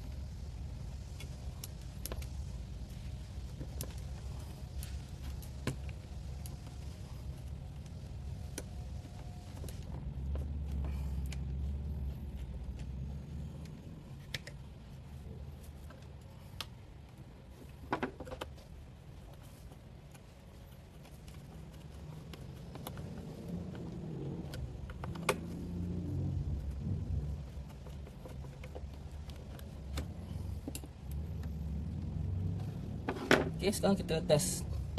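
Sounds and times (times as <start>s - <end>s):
low rumble: 21.4s - 34.9s.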